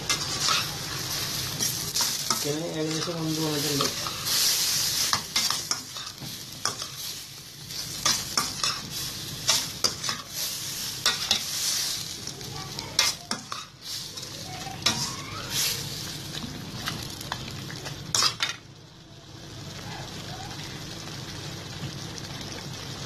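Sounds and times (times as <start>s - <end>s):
metal spoon scraping a pan: 0.0s - 0.8s, 1.6s - 12.1s, 12.9s - 16.1s
food sizzling in a pan: 0.0s - 23.0s.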